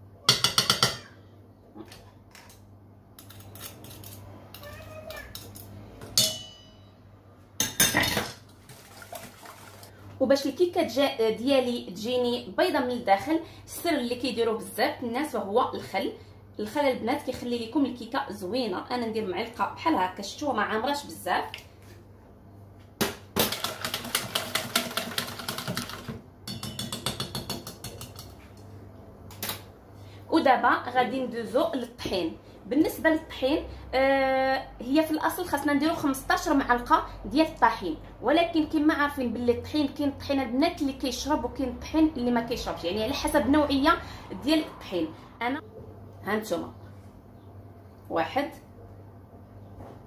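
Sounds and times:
spoon striking metal bowl: 0.3s - 1.1s, 6.2s - 6.9s, 26.4s - 28.3s
whisk beating batter: 23.5s - 28.4s.

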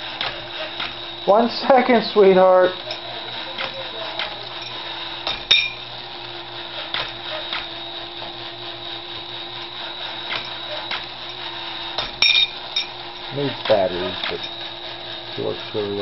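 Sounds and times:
toy clicking: 0.0s - 1.2s, 2.2s - 5.7s
toy motor and gears whirring: 0.0s - 16.0s.

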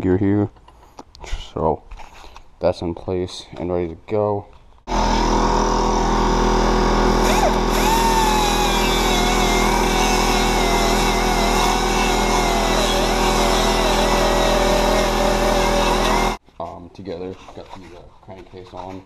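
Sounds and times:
die grinder on metal: 4.9s - 16.4s
steady machine drone: 4.9s - 16.4s.

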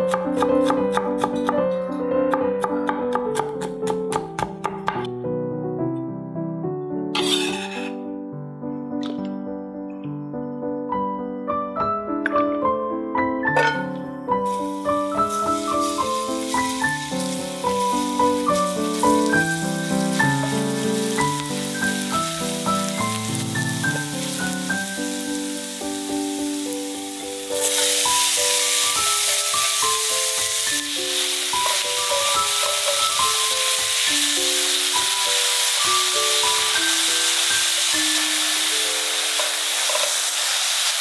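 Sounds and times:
soft piano music: 0.0s - 40.6s
food sizzling in oil: 7.2s - 7.9s, 14.4s - 41.0s.

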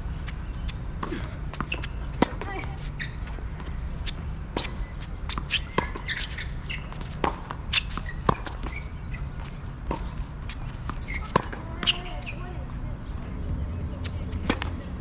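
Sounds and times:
tennis ball bouncing: 0.6s - 12.5s, 14.0s - 14.9s
racket striking tennis ball: 4.6s - 8.8s, 9.8s - 12.4s.

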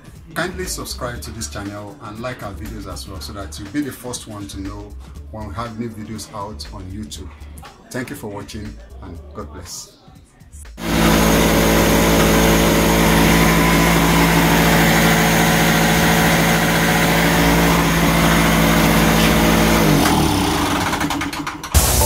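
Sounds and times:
generator engine running: 10.8s - 22.0s.

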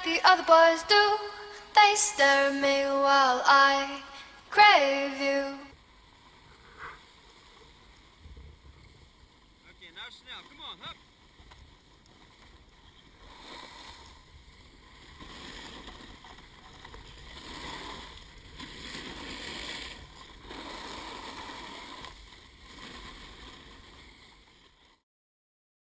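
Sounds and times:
snowboards scraping over snow: 15.0s - 24.2s.

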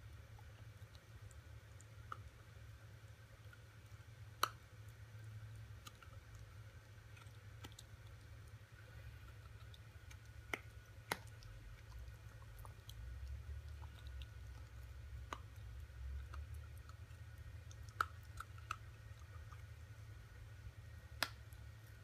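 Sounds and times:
dog teeth clicking on chew: 7.1s - 8.4s, 9.2s - 19.7s.

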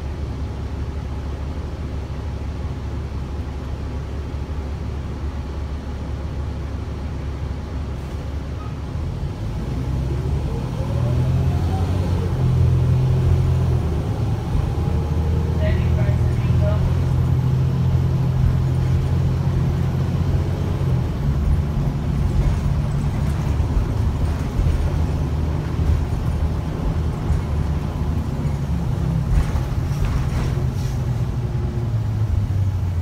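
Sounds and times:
bus engine hum: 0.0s - 33.0s
road noise: 0.0s - 33.0s.

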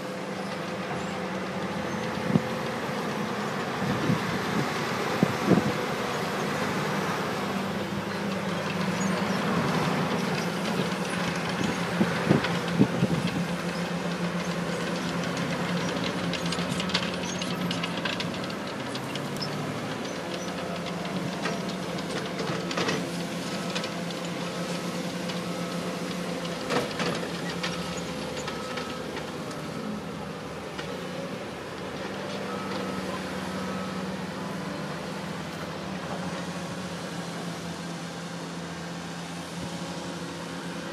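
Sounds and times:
diesel truck engine running: 0.0s - 40.9s.

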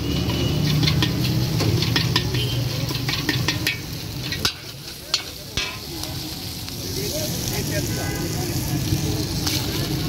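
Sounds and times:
ladle scraping a wok: 0.0s - 6.3s
oil sizzling: 0.0s - 10.0s.

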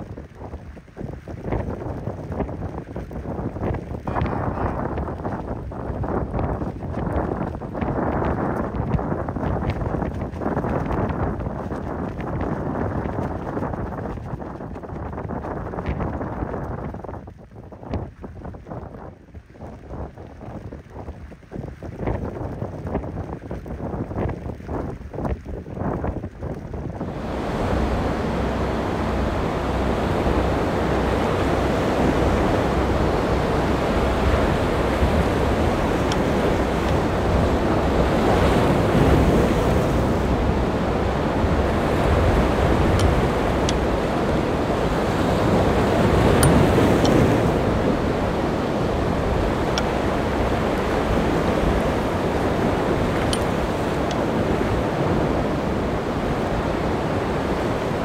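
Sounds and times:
wind buffeting microphone: 0.0s - 58.0s
waves and surf rushing: 27.0s - 58.0s.

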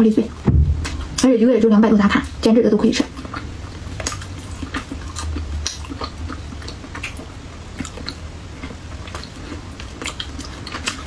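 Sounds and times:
person chewing toast: 3.1s - 11.0s.

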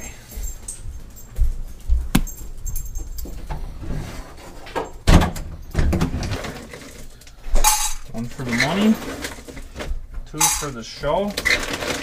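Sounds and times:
light metallic jingling: 0.0s - 3.6s
handling knocks: 2.1s - 2.6s.

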